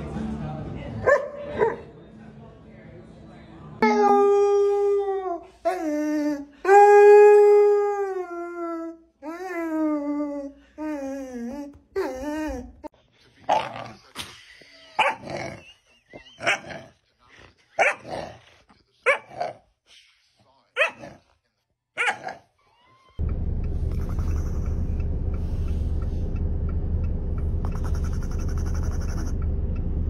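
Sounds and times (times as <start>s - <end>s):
dog howling: 3.8s - 12.9s
dog barking gruffly: 17.8s - 19.6s, 20.8s - 21.3s, 22.0s - 22.5s.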